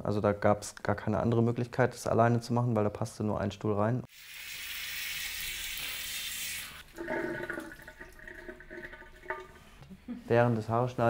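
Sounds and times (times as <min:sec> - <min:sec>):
shower spray on hair: 0:04.1 - 0:06.8.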